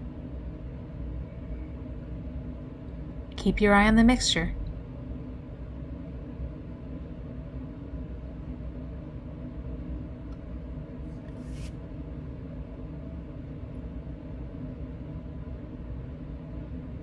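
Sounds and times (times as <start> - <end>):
air handling rumble and hum: 0.0 - 17.0
short soft hiss: 11.3 - 11.8.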